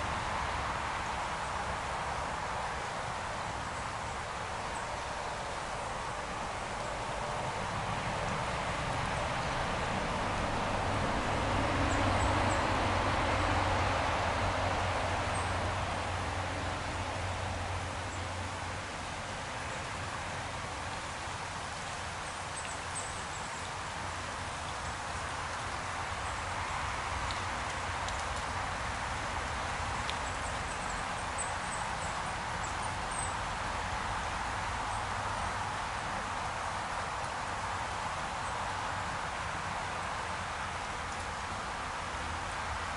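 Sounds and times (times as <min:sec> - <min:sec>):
stream water babbling: 0:00.0 - 0:42.9
road vehicle passing: 0:05.4 - 0:21.6.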